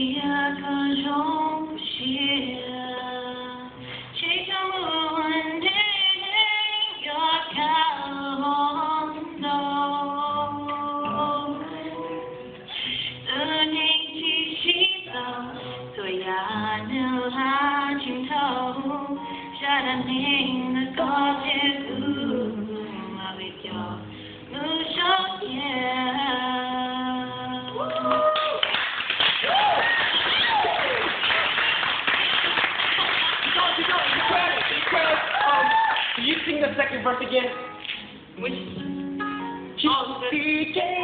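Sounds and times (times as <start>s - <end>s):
woman singing: 0.0s - 28.6s, 32.8s - 37.1s, 38.4s - 39.0s, 39.6s - 41.0s
acoustic guitar: 0.0s - 41.0s.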